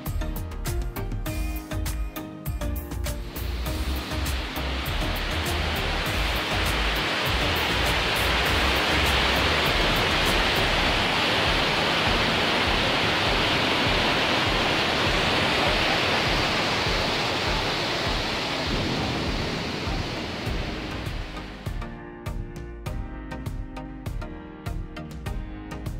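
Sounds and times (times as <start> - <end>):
waterfall rushing: 3.0 - 21.7.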